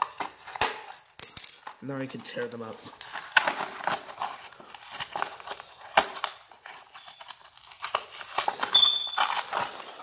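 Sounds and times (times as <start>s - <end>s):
packaging being torn and crinkled: 2.9s - 10.0s
high squeak of plastic: 8.2s - 9.5s.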